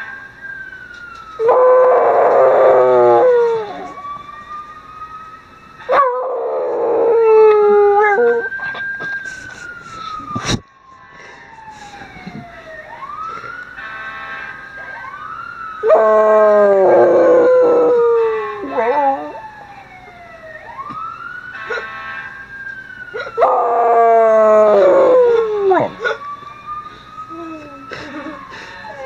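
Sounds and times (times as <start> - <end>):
wailing siren: 0.0 - 29.0
dog howling: 23.4 - 26.2.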